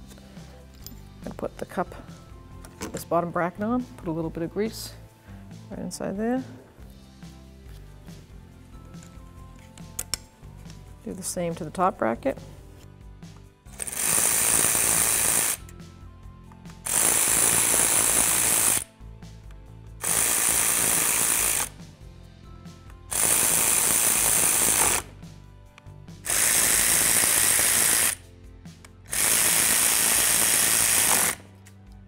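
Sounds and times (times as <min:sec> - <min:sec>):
power ratchet driving screws: 0:13.7 - 0:15.7, 0:16.8 - 0:18.9, 0:20.0 - 0:21.8, 0:23.1 - 0:25.1, 0:26.2 - 0:28.2, 0:29.1 - 0:31.5.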